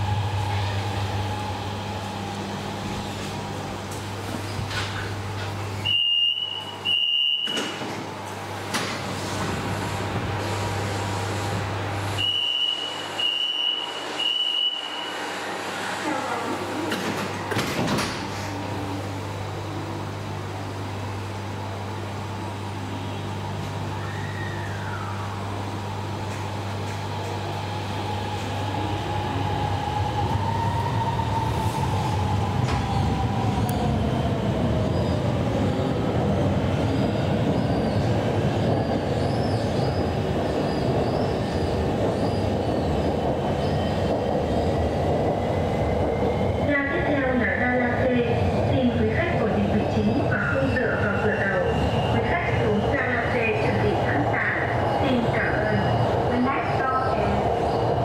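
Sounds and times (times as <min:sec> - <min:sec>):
train doors shutting: 0:00.0 - 0:21.9, 0:22.6 - 0:46.9
wheels rumbling on rails: 0:16.1 - 0:58.0.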